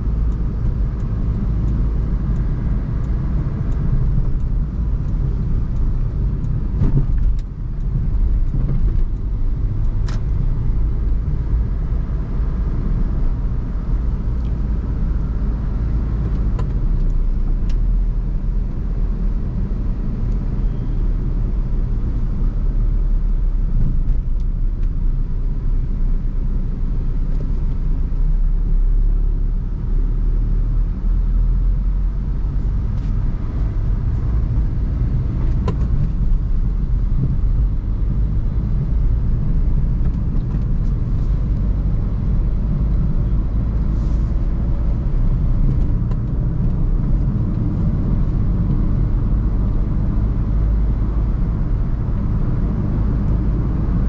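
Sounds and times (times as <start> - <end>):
car driving rumble: 0.0 - 54.0.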